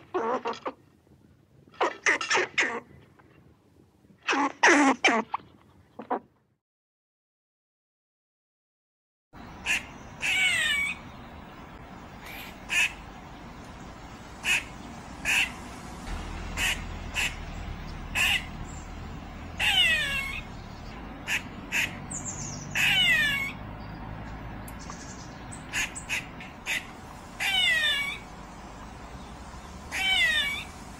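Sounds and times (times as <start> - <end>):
squirrel barking: 9.6 - 11.0, 14.4 - 15.6, 16.6 - 18.8, 19.5 - 20.6, 21.2 - 23.6, 25.6 - 28.3, 29.9 - 30.8
squirrel calls sliding down: 25.7 - 28.3, 29.9 - 30.8.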